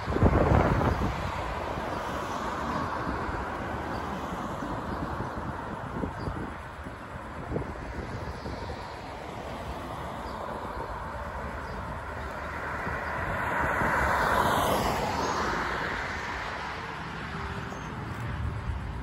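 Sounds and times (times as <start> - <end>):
background traffic rumble: 0.0 - 19.0
vehicle passing close: 7.4 - 19.0.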